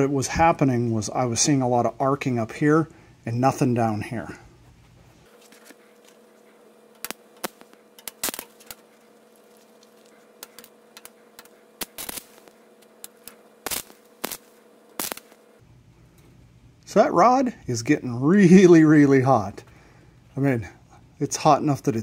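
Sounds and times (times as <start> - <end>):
welding arc crackling and popping: 5.3 - 15.6.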